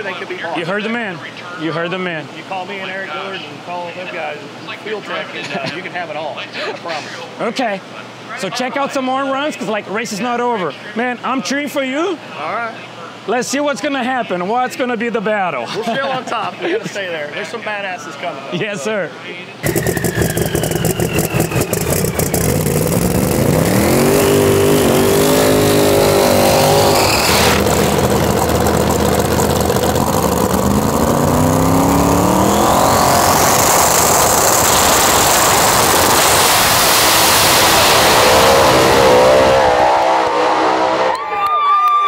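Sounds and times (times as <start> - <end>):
race car engine roaring: 19.6 - 41.3
high whistle: 19.7 - 22.9.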